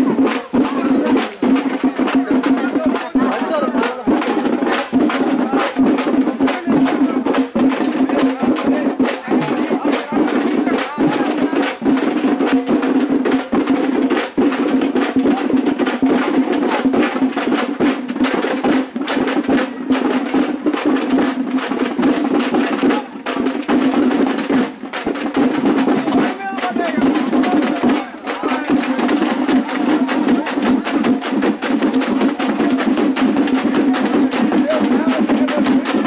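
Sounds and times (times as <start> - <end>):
rapid dense drumming: 0.0 - 36.0.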